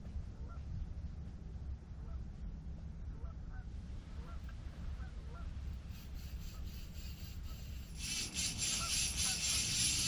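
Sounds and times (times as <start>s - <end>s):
distant geese honking: 3.2s - 10.0s
fishing reel clicking: 5.9s - 10.0s.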